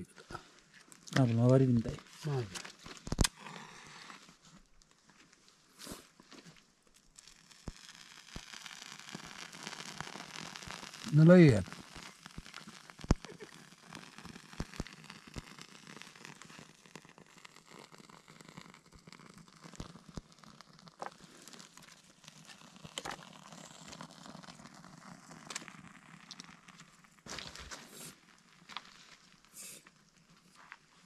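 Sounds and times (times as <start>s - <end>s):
small wood fire crackling: 0.0s - 31.0s
wood fire snap: 0.3s - 31.0s.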